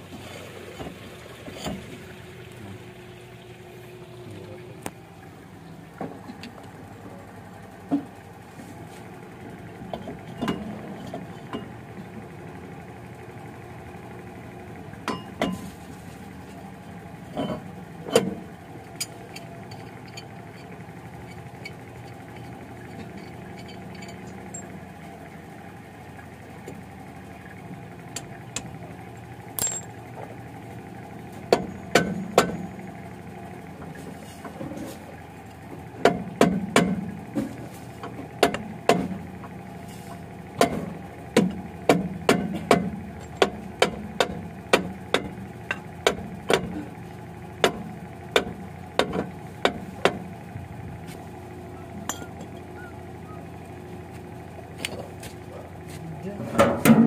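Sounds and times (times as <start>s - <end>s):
steady hum: 36.5s - 57.0s.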